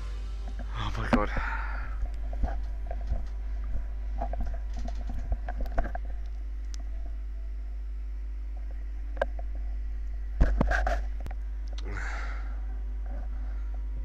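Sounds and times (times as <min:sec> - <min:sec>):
low electrical hum: 0:00.0 - 0:14.0
rustling close to microphone: 0:02.0 - 0:07.2.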